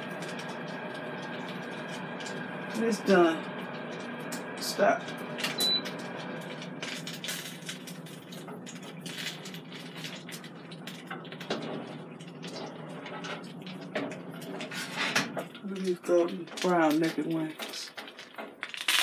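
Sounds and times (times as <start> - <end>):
steady low hum: 0.0 - 18.6
short electronic beep: 5.6 - 5.9.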